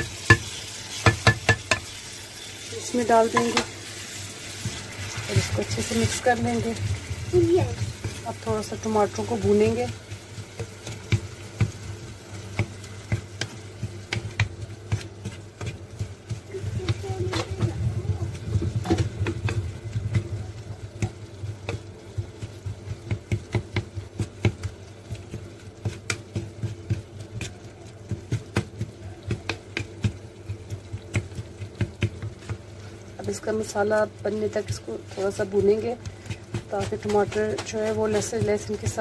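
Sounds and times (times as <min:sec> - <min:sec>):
spatula knocking against pot: 0:00.0 - 0:01.9, 0:12.4 - 0:17.7, 0:18.6 - 0:32.7
food sizzling in oil: 0:00.0 - 0:39.0.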